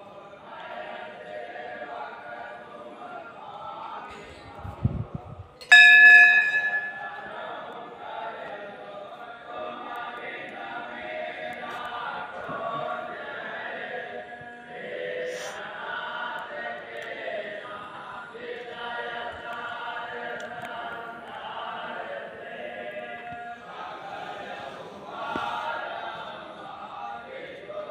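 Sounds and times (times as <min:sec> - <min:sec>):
group of voices chanting: 0:06.6 - 0:27.9.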